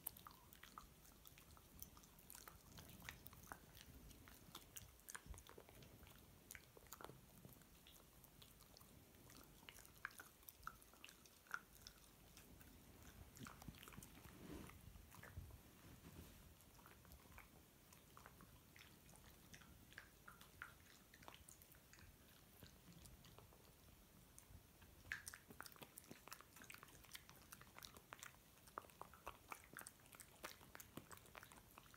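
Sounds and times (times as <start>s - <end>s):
dog chewing crunchy food: 0.0s - 23.6s.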